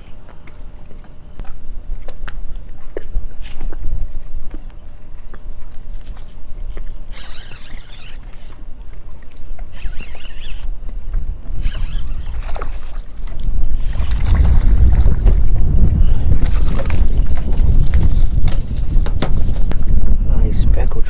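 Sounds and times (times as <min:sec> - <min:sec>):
short high-pitched whirring: 0:07.0 - 0:08.5, 0:09.7 - 0:10.6
wind buffeting microphone: 0:10.6 - 0:21.0.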